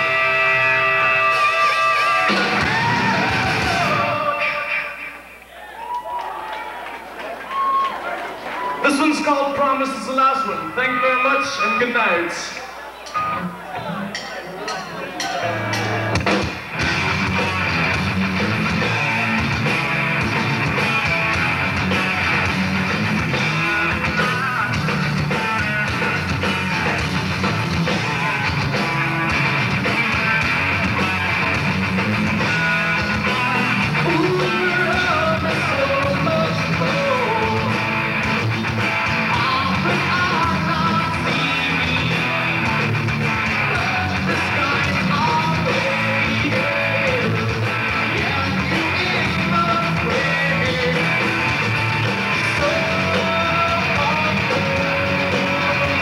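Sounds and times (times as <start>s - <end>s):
bass guitar: 0.0s - 5.2s, 13.1s - 14.2s, 15.2s - 56.0s
person singing: 0.0s - 5.2s, 33.9s - 38.0s, 39.2s - 56.0s
distorted electric guitars: 0.0s - 5.5s, 9.1s - 14.2s, 15.2s - 56.0s
drums: 0.0s - 56.0s.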